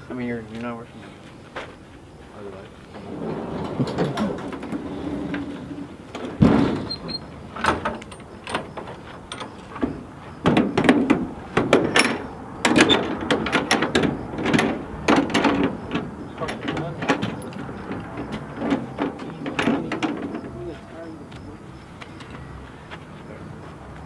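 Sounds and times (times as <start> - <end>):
trailer door thud: 3.0 - 20.7
metallic latch clanks and clicks: 6.2 - 20.5.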